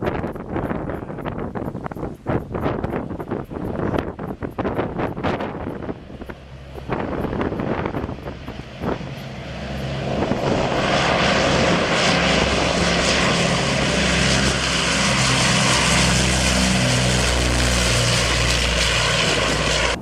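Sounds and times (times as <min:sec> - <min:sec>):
propeller engines running: 0:00.0 - 0:20.0.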